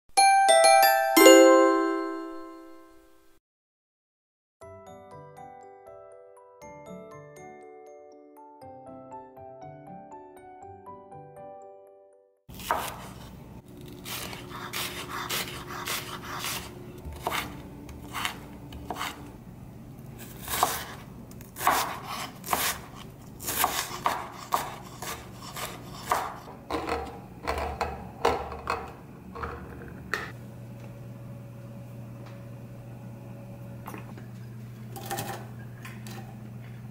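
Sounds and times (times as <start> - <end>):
knife chopping on wooden board: 12.5 - 13.3, 14.0 - 19.3, 20.2 - 28.9.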